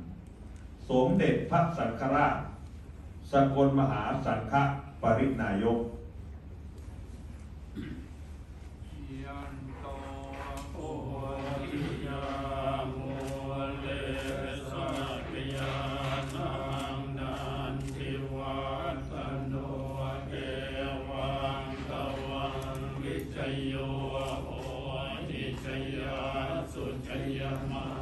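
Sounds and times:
monks chanting: 8.8s - 28.0s.

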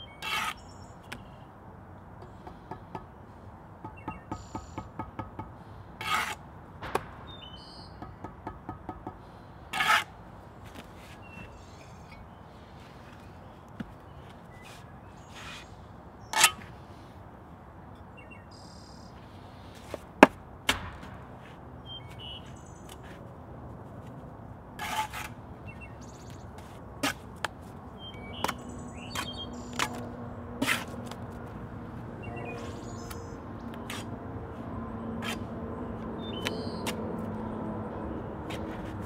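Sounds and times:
small birds chirping: 0.0s - 1.5s, 3.8s - 5.0s, 7.1s - 8.3s, 10.6s - 17.0s, 18.0s - 19.9s, 21.8s - 23.2s, 25.6s - 26.7s, 27.9s - 30.1s, 32.2s - 34.1s, 35.2s - 37.0s
trowel knocking and scraping: 3.8s - 10.1s.

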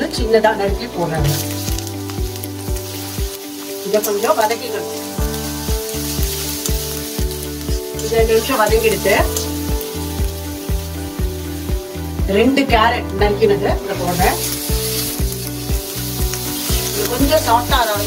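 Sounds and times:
background music with a beat: 0.0s - 3.9s, 4.6s - 18.0s
onion sizzling in hot oil: 0.0s - 18.0s
spatula stirring in a pan: 14.1s - 18.0s.

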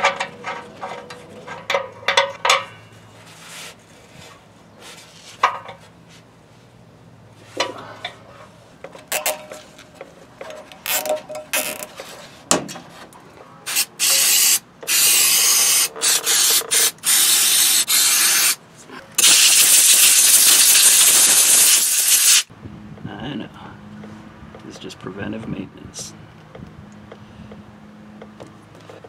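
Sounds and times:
aerosol can spraying: 13.7s - 18.6s, 19.2s - 22.5s
ratchet wrench clicking: 13.7s - 18.6s, 19.2s - 22.4s.

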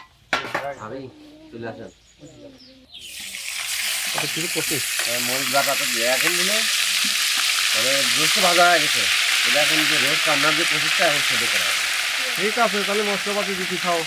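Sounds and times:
food sizzling in hot oil: 3.0s - 14.0s.

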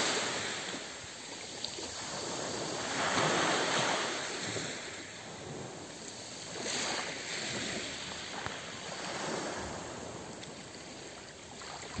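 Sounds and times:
waves washing on pebble beach: 0.0s - 12.0s.

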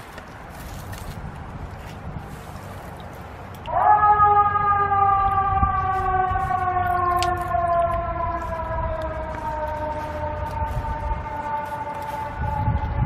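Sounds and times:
siren wailing: 3.7s - 13.0s.

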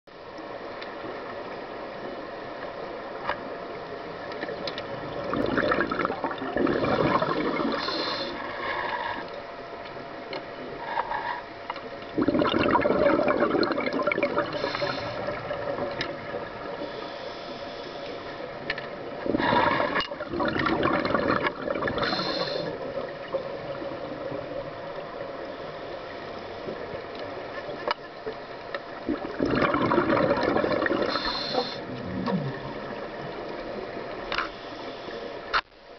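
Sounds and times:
underwater background: 0.1s - 35.9s
regulator bubble bursts underwater: 5.0s - 8.1s, 12.1s - 16.8s, 19.1s - 25.5s, 28.9s - 34.0s.

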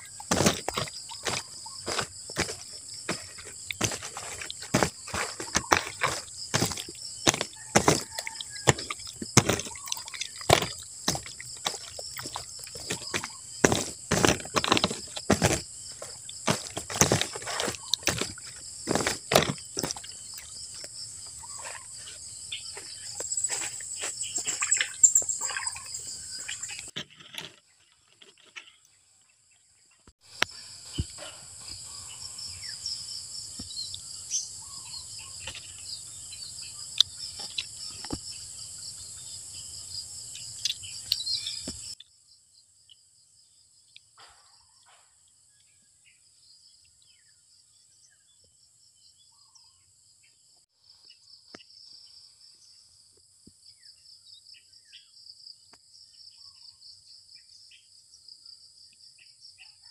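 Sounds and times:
hands kneading raw chicken: 0.0s - 20.2s.

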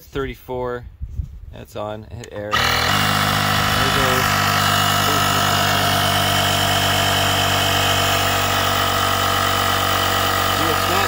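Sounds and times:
air compressor humming and whining: 2.5s - 11.0s.

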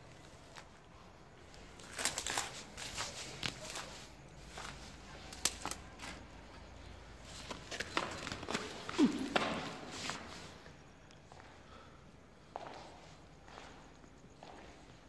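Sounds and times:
footsteps crunching on gritty concrete: 7.4s - 10.3s.

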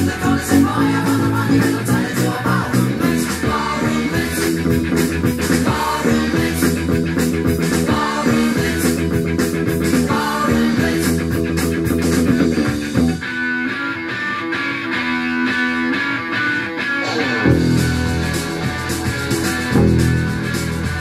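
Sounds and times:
electric bass guitar plucked: 0.0s - 21.0s
loud rock recording: 0.0s - 21.0s
sustained guitar chords ringing: 13.0s - 21.0s.

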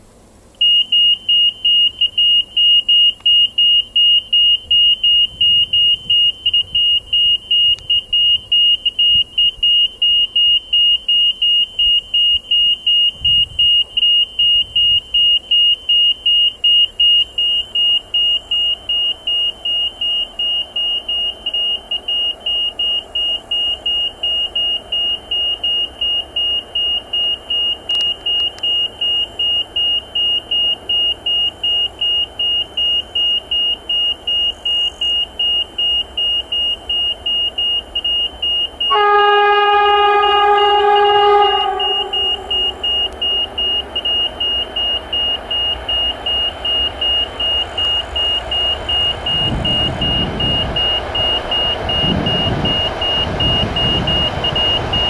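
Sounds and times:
locomotive rumble: 11.6s - 55.0s
level crossing beeps: 39.6s - 55.0s.

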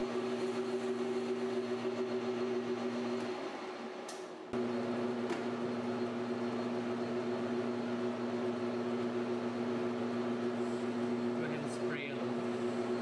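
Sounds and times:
metal lathe running: 0.0s - 3.2s.

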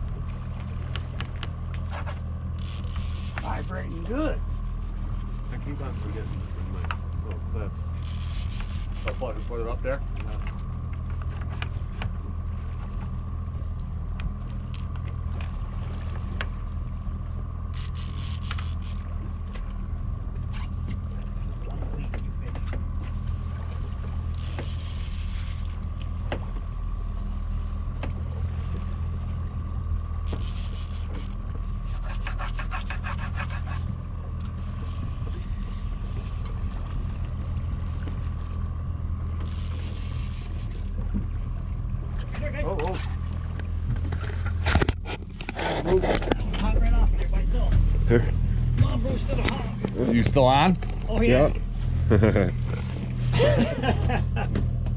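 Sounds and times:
boat engine droning: 0.0s - 54.9s
thin steady whine: 0.0s - 54.9s.

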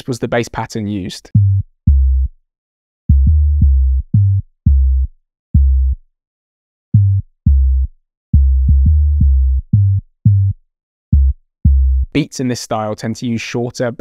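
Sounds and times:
bouncy sub-bass notes: 1.3s - 2.4s, 3.1s - 6.0s, 6.9s - 12.2s.

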